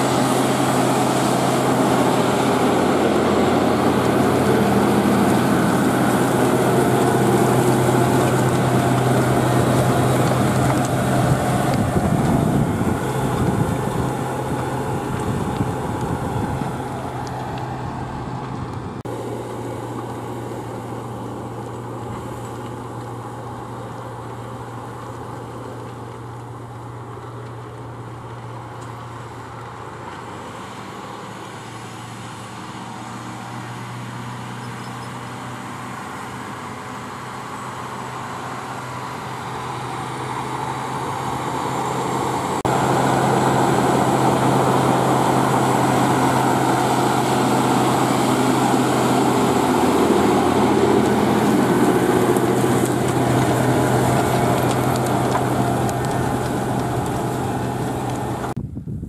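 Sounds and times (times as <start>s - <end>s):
tractor diesel engine running: 0.0s - 58.7s.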